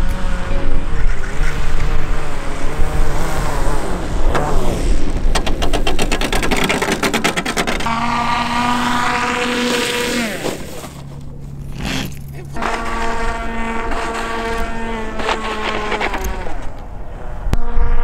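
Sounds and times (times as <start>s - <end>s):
model airplane motor and propeller: 0.0s - 18.0s
rapid fluttering: 4.4s - 16.8s.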